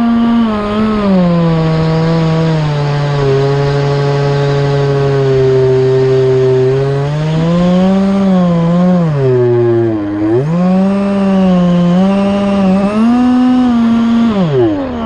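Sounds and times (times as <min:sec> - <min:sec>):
electric motor and propeller buzzing: 0:00.0 - 0:15.0.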